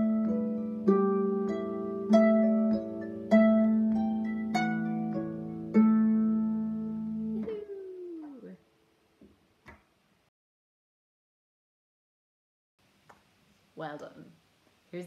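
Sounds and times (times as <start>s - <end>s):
harp chords ringing: 0.0s - 8.5s.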